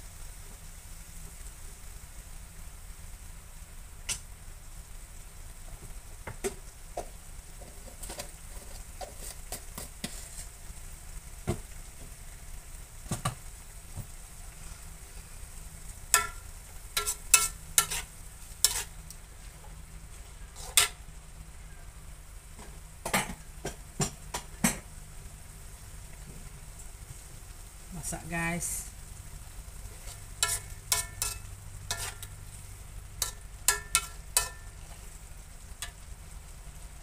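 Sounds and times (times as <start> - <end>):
faint sizzle: 0.0 - 37.0
metal spatula scraping a wok: 7.6 - 10.6, 17.0 - 19.0, 20.5 - 21.0, 29.9 - 32.6, 33.2 - 35.2.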